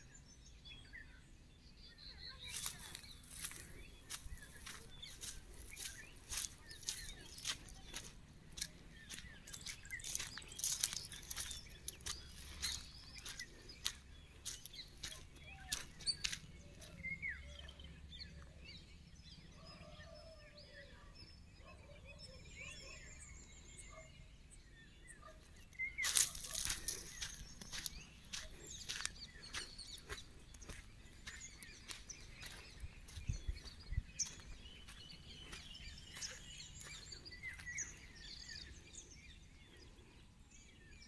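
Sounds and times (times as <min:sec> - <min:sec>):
birds chirping and calling: 0:02.0 - 0:19.0, 0:19.6 - 0:41.0.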